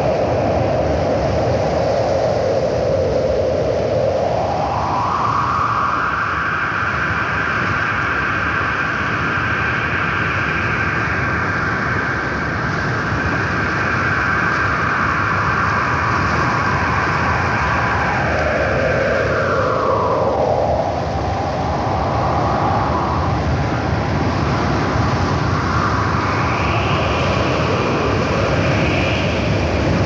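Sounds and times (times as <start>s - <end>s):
high howling tone: 2.3s - 30.0s
wind rushing: 10.8s - 30.0s.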